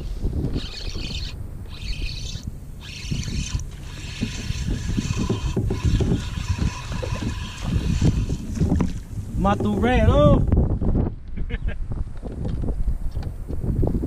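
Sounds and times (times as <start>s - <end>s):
wind gusts on microphone: 0.0s - 14.0s
fishing reel whirring: 0.5s - 9.0s.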